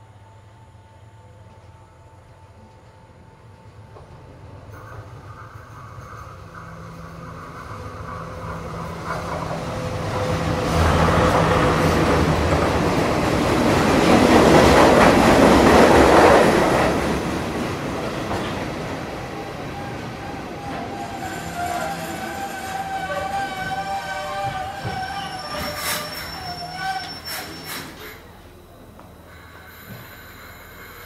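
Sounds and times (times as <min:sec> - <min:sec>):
train engine drone: 0:00.0 - 0:31.0
train wheels clattering on rails: 0:03.6 - 0:28.0.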